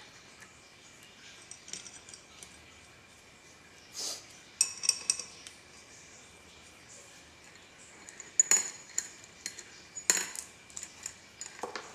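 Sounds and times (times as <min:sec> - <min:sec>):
metal parts clinking: 0:01.4 - 0:02.5, 0:04.6 - 0:05.4, 0:08.0 - 0:11.9.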